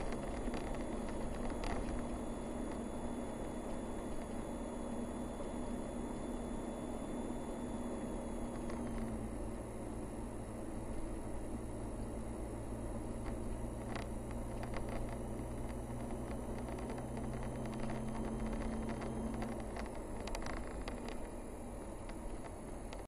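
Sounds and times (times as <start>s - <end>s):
car engine drone: 0.0s - 23.0s
tyre road noise: 0.0s - 23.0s
light clicks and rattles: 13.2s - 21.4s.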